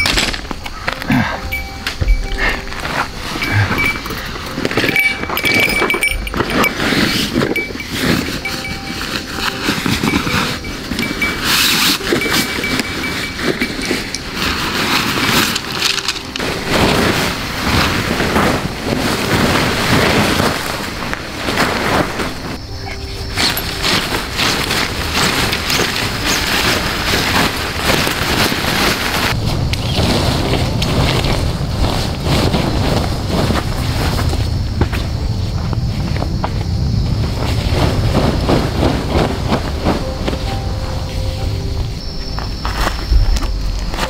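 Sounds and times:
nylon fabric rustling and scraping: 0.0s - 36.3s, 37.2s - 44.0s
thin high pulsing tone: 1.4s - 18.6s, 22.5s - 29.4s.

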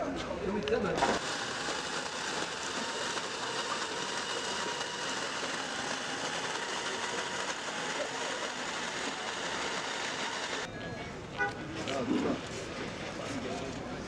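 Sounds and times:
coffee grinder whirring: 1.0s - 10.7s.

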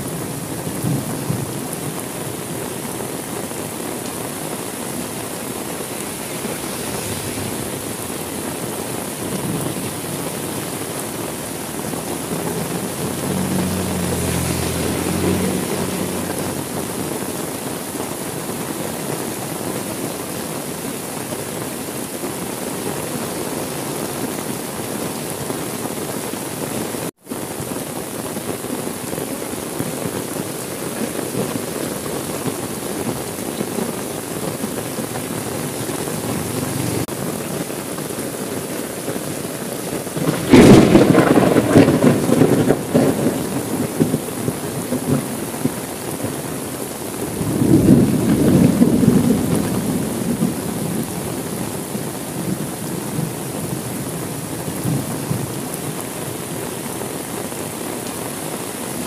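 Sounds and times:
thunder rumbling: 0.0s - 17.7s, 33.0s - 37.5s, 40.0s - 46.4s, 47.2s - 51.5s
heavy rain: 0.0s - 59.0s.

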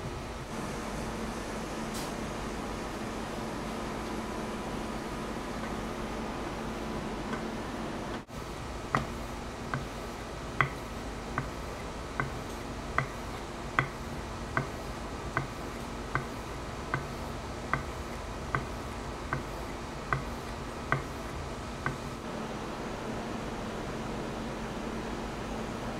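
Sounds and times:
low background hum: 0.0s - 25.9s
plane iron clicking on leather strop: 8.9s - 10.0s, 10.6s - 10.8s, 11.4s - 14.0s, 14.6s - 21.2s.

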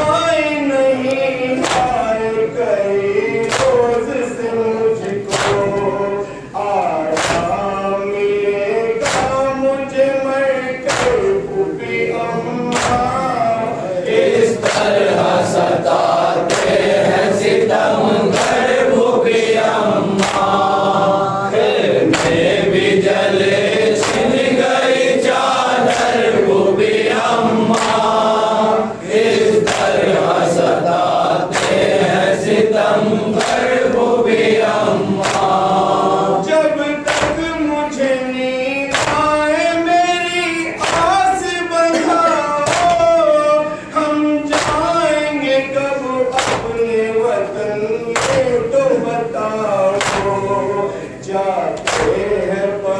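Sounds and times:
men chanting together: 0.0s - 52.9s
chest beating slaps: 1.6s - 2.1s, 5.3s - 5.9s, 7.1s - 7.7s, 9.0s - 9.5s, 10.8s - 11.4s, 12.7s - 13.2s, 20.2s - 20.6s, 22.0s - 22.6s, 24.0s - 24.4s, 35.2s - 35.6s, 37.1s - 37.6s, 38.9s - 39.4s, 40.8s - 41.2s, 42.6s - 43.1s, 44.5s - 45.0s, 46.3s - 46.9s, 48.2s - 48.7s, 50.0s - 50.6s, 51.8s - 52.3s.

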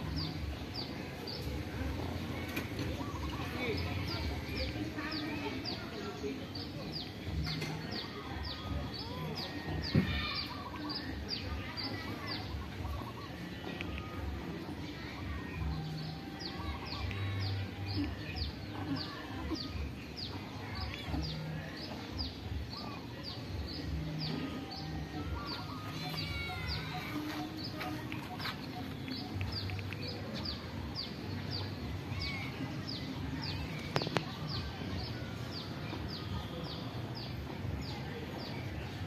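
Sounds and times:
low bird calls: 2.4s - 4.0s.

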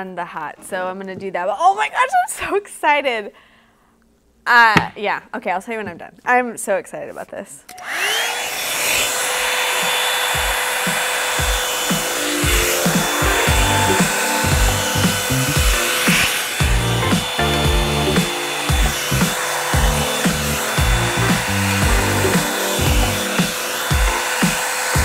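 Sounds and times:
hair dryer rushing air and whine: 7.7s - 25.0s
background music with a beat: 10.3s - 25.0s.

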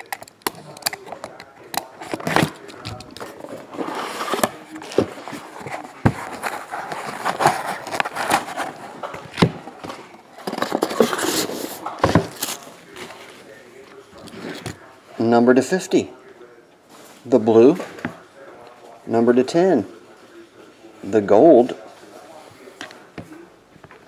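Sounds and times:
cardboard scraping and rubbing: 2.1s - 9.6s, 10.4s - 12.6s.

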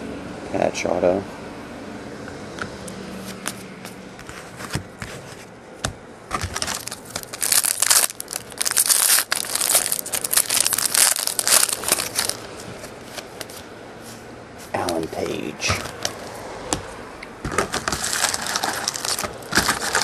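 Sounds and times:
plastic crinkling: 6.3s - 13.6s, 17.5s - 20.0s.

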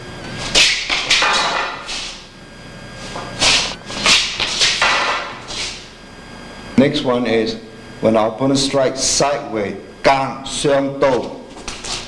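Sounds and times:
feet scuffing: 0.3s - 2.3s, 3.0s - 6.0s, 11.1s - 12.0s
swords clashing against pole: 0.5s - 2.2s, 3.5s - 5.8s.

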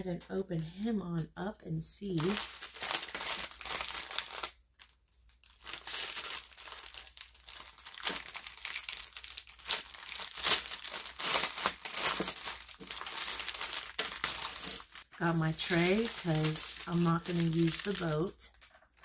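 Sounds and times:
plastic bag crinkling: 2.1s - 19.0s.

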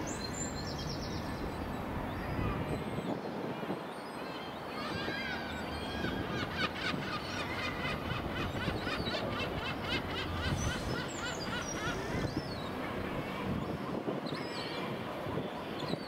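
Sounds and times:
birds chirping: 3.9s - 16.0s.

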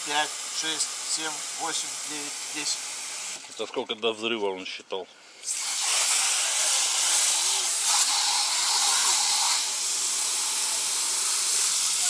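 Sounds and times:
hose spray nozzle hissing: 5.4s - 12.0s.

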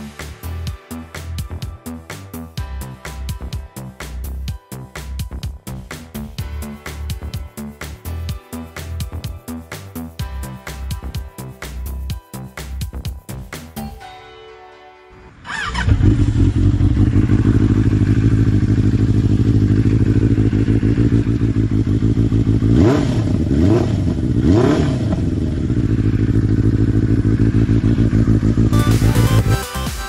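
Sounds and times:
motorcycle engine idling and revving: 0.0s - 13.7s, 15.5s - 29.7s
music: 0.0s - 16.6s, 28.7s - 30.0s.

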